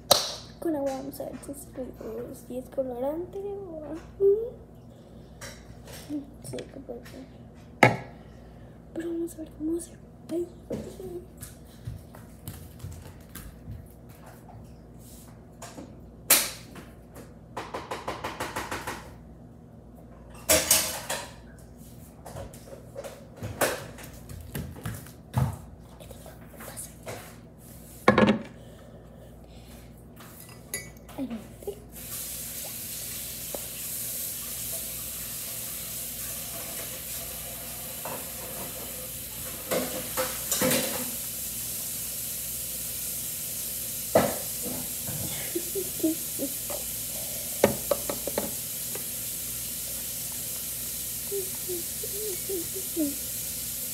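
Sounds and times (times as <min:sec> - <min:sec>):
steady hiss: 0:31.9 - 0:53.9.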